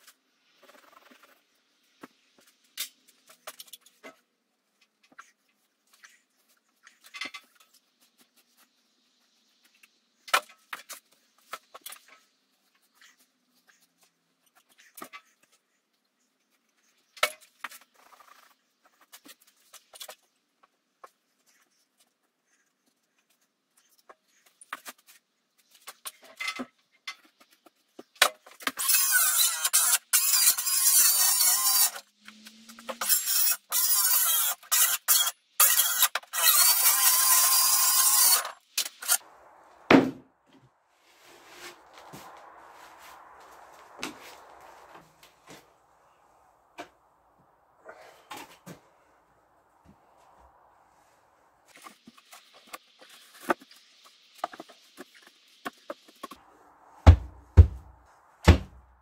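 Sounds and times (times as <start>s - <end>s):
power saw cutting a board: 28.8s - 32.0s, 32.6s - 39.2s.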